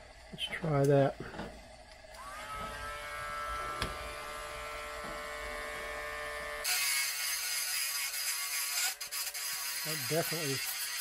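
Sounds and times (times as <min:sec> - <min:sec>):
rotary tool whine: 0:00.0 - 0:11.0
disc grinding metal: 0:02.2 - 0:11.0.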